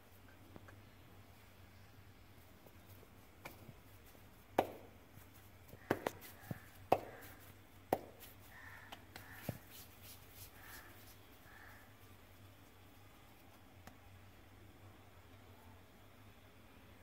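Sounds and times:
hands handling dough: 0:02.6 - 0:11.8.

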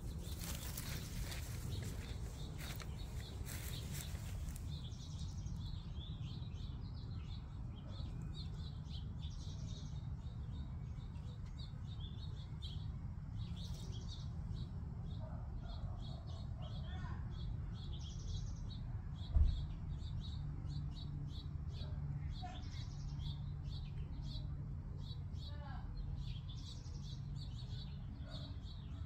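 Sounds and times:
rustling: 0:00.0 - 0:04.8
steady low rumble: 0:00.0 - 0:15.1
small birds chirping: 0:00.0 - 0:29.0.

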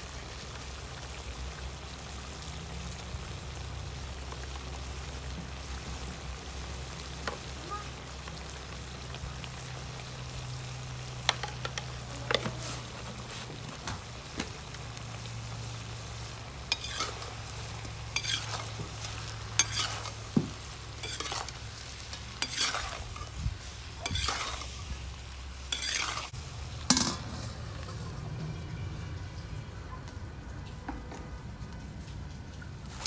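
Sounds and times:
meat sizzling: 0:00.0 - 0:28.2, 0:32.6 - 0:33.0
metal spatula scraping wok: 0:16.0 - 0:28.3.

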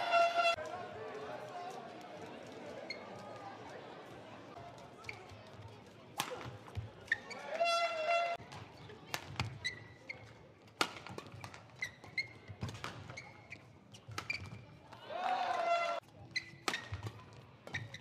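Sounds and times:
shoes squeaking on court: 0:02.8 - 0:03.2, 0:06.7 - 0:14.8, 0:16.2 - 0:18.0
rackets hitting shuttlecock: 0:06.2 - 0:09.8, 0:10.7 - 0:13.3, 0:14.0 - 0:14.6, 0:15.6 - 0:18.0.

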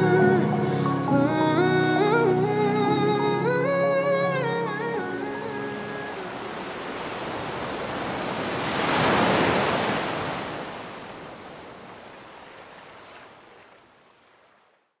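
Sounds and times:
ocean waves washing on shore: 0:04.6 - 0:14.8.

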